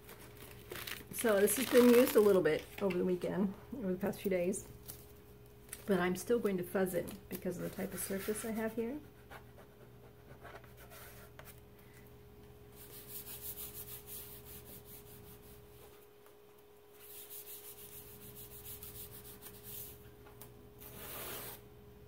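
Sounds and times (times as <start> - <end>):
stencil rubbing on towel: 12.8 - 16.0, 16.9 - 20.0.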